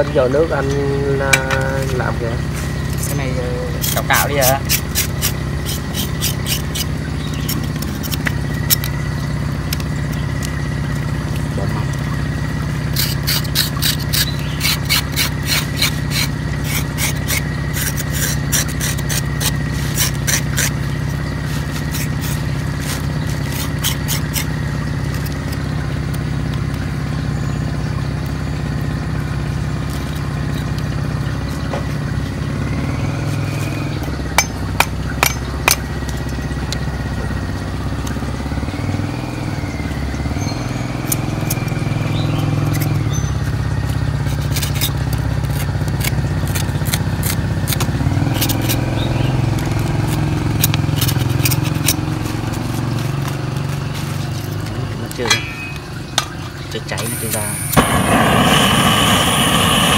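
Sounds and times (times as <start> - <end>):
low engine-like hum: 0.0 - 59.9
knife scraping pork skin: 1.5 - 8.9, 12.8 - 25.6, 42.6 - 55.2.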